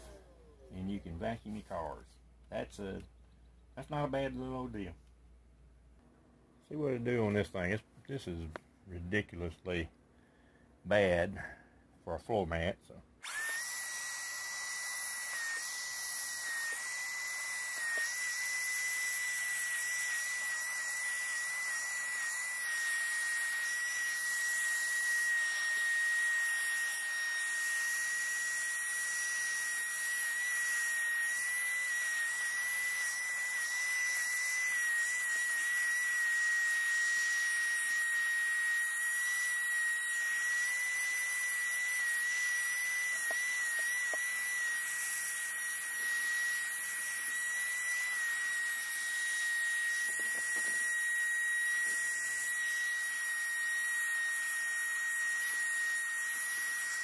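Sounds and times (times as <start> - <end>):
handheld vacuum whine and hiss: 0.0 - 0.7, 13.2 - 57.0.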